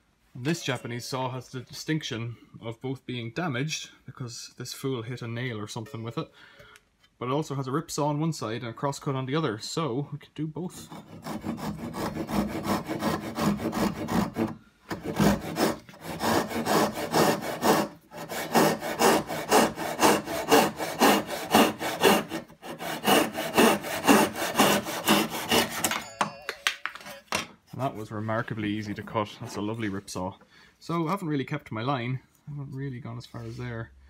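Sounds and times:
hand saw cutting wood: 10.8 - 26.1.

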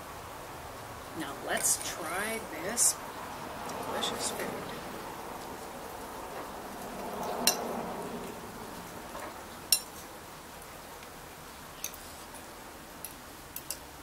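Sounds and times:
cutlery clinking on plates: 13.0 - 13.9.

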